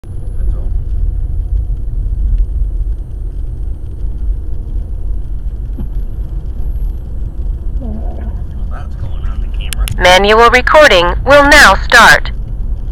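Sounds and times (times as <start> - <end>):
car rumble inside cabin: 0.0 - 12.9.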